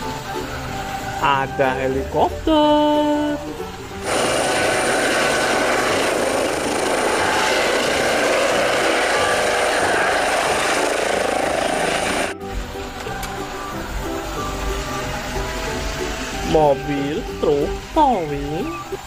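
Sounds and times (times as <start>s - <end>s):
high steady whine: 0.0s - 19.0s
helicopter rotor and turbine: 3.9s - 19.0s.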